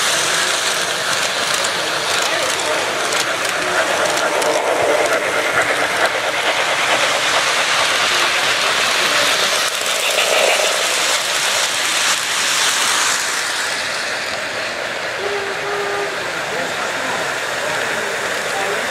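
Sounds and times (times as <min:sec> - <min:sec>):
model train wheels clattering on rails: 0:00.0 - 0:14.8.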